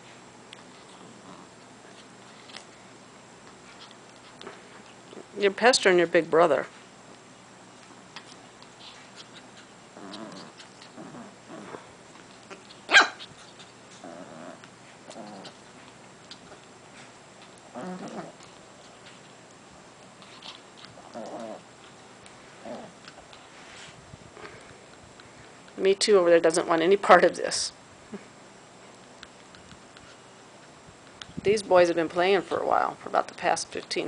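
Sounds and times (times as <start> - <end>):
dogs growling in play: 0.9 - 1.6, 9.2 - 12.7, 13.4 - 15.7, 17.6 - 19.1, 20.2 - 23.3.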